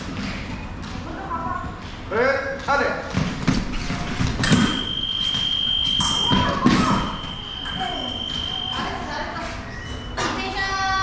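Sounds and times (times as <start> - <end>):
footwork thuds: 3.0 - 9.1
scoring machine high tone: 4.6 - 10.2.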